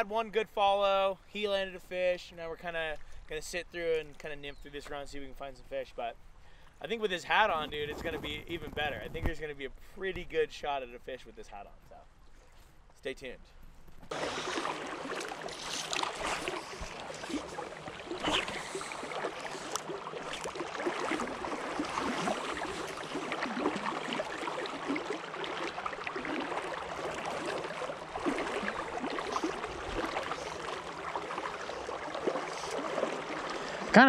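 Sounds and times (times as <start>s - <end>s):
fast-flowing river rushing: 14.1s - 34.0s.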